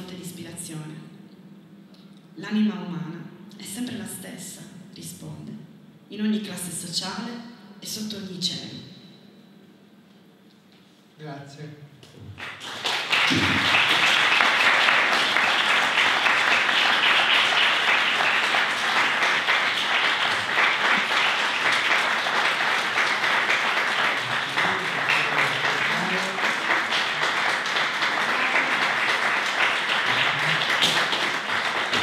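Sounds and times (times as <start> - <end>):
audience applauding: 12.4 - 32.0.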